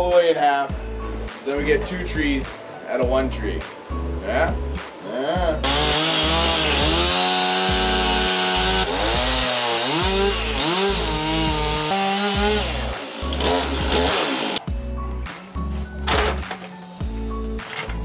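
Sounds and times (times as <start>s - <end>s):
chainsaw cutting through log: 5.6s - 14.7s.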